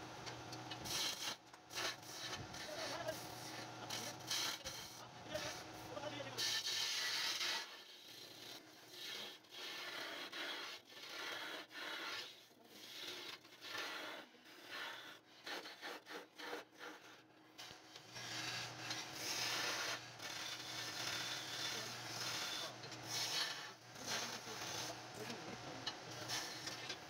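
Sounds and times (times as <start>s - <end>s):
wood turning on a lathe: 0.5s - 27.0s.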